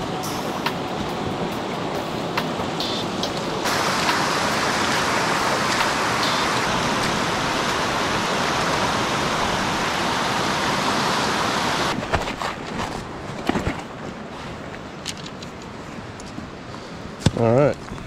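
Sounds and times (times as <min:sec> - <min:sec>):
river rushing over rocks: 0:00.0 - 0:12.0.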